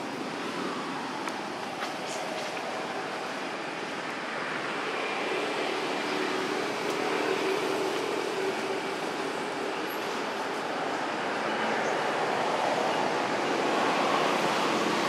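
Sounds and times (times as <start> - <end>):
rushing outdoor background noise: 0.0 - 15.0.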